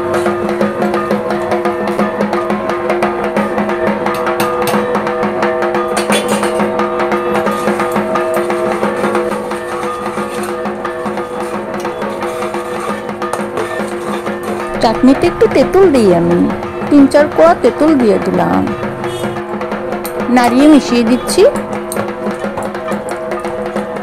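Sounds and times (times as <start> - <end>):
steady drum beat: 0.0 - 24.0.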